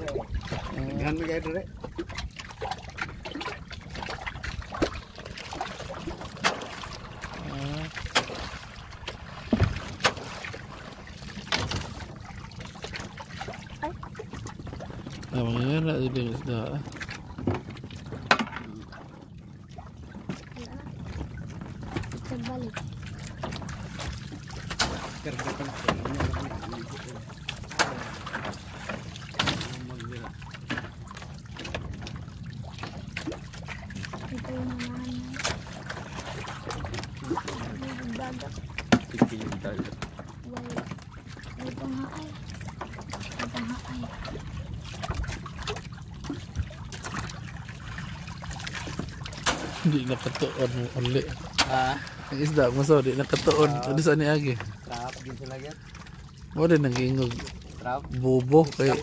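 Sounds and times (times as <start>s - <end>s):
boat engine rumble: 0.0s - 59.0s
water noise: 0.0s - 59.0s
sharp knocks and clatter: 17.4s - 18.7s.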